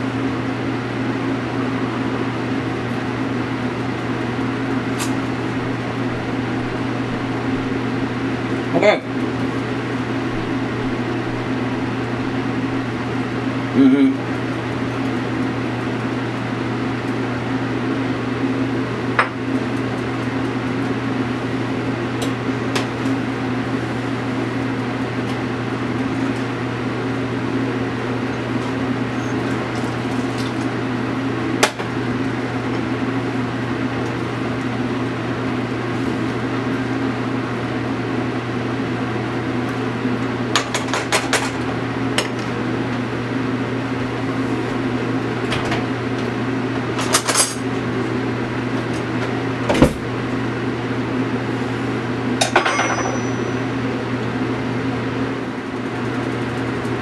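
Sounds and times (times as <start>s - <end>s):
appliance motor hum: 0.0s - 57.0s
utensils clinking on dishes: 52.4s - 53.6s.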